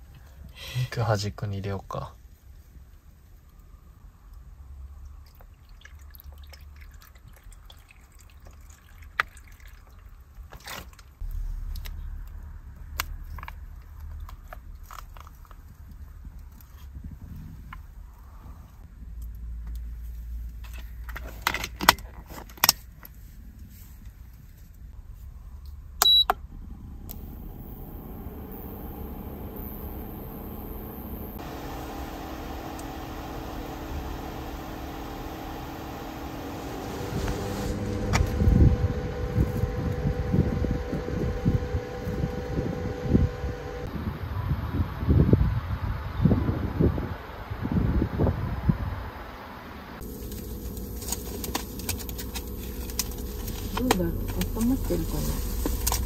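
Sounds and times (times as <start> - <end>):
wet dripping sounds: 5.0 - 11.2
low rumble: 11.2 - 20.5, 24.2 - 56.0
faint high whine: 25.0 - 56.0
short beep: 26.0 - 26.4
stove hissing: 26.5 - 56.0.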